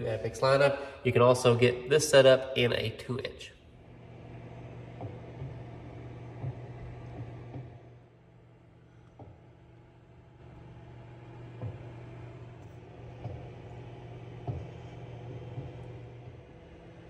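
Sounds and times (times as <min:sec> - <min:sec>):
low machine hum: 0:00.0 - 0:17.0
soft knocks: 0:14.4 - 0:15.9.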